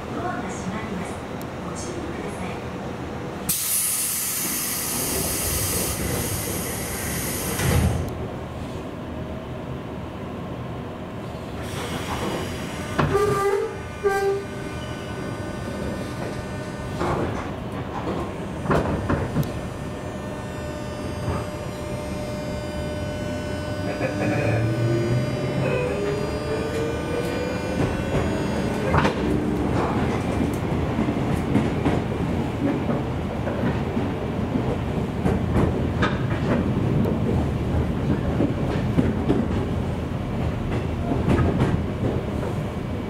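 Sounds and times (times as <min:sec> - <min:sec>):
train running noise: 0:00.0 - 0:43.0
train clunks pulling away: 0:03.5 - 0:08.1, 0:11.5 - 0:15.4, 0:16.1 - 0:39.8
train doors hissing shut: 0:03.5 - 0:08.8, 0:11.4 - 0:15.4, 0:16.1 - 0:20.0, 0:20.8 - 0:30.6
electric motor buzzing hum: 0:11.9 - 0:13.1, 0:13.8 - 0:17.1, 0:18.4 - 0:29.7.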